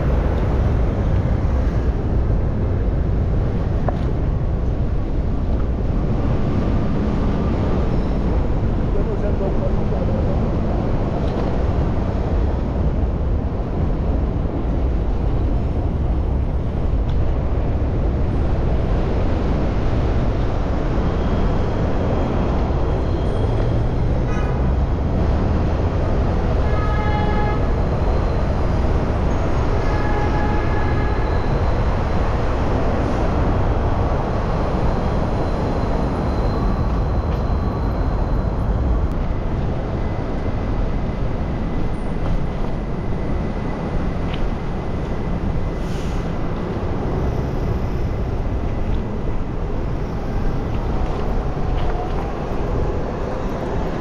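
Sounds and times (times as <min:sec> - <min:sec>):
bicycle road noise: 0:00.0 - 0:54.0
city traffic: 0:00.0 - 0:54.0
wind rumble on microphone: 0:00.0 - 0:54.0.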